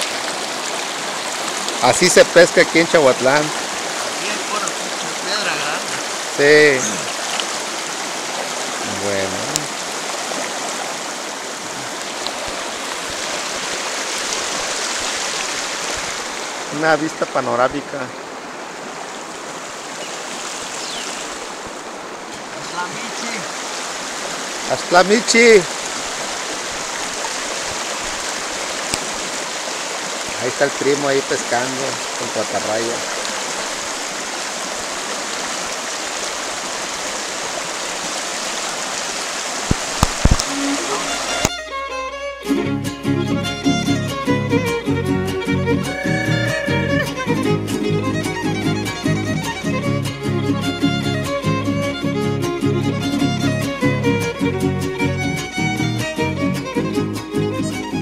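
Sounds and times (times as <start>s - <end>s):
water rushing over rocks: 0.0s - 41.6s.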